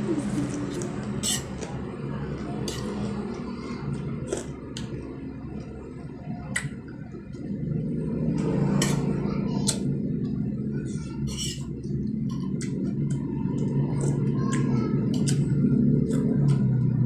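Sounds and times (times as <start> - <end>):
low steady hum: 0.0 - 17.0
fork scraping ceramic plate: 1.2 - 1.6, 11.3 - 11.6
chewing with wet mouth noises: 11.8 - 17.0.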